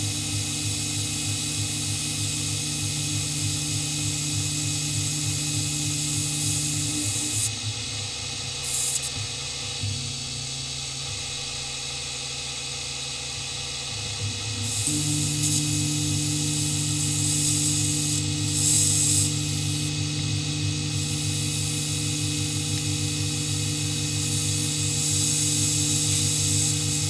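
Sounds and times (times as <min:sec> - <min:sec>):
milling machine hum: 0:00.0 - 0:27.0
deep steady machine tone: 0:13.6 - 0:27.0
hissing bursts: 0:14.6 - 0:20.3.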